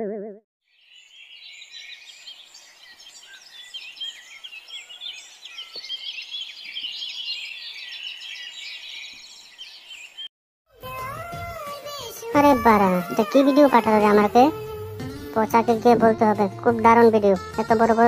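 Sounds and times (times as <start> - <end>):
small birds chirping: 0.7 - 10.3.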